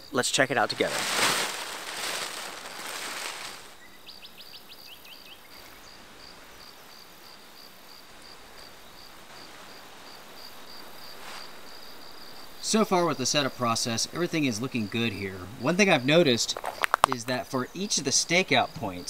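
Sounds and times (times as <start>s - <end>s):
insect chirping: 0.0s - 19.0s
tent fabric rustling: 0.4s - 3.9s, 9.2s - 12.3s
fabric swish: 0.7s - 3.8s.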